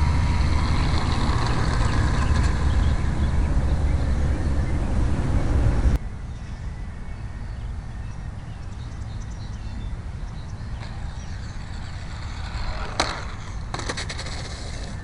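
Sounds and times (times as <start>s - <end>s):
wind buffeting microphone: 0.0s - 6.0s
outdoor background: 0.0s - 15.0s.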